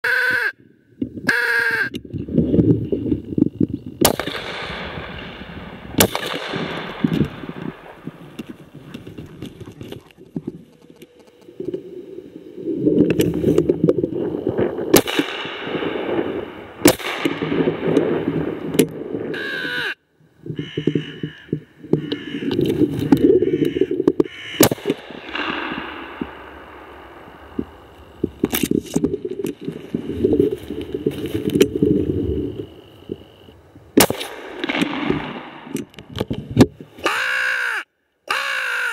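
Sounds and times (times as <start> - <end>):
crows cawing: 0.0 - 0.6, 1.3 - 1.9, 19.3 - 20.0, 20.6 - 22.6, 23.3 - 25.8, 37.0 - 38.9
shotgun shots: 4.0 - 8.2, 14.9 - 18.1, 24.6 - 26.9, 34.0 - 35.8.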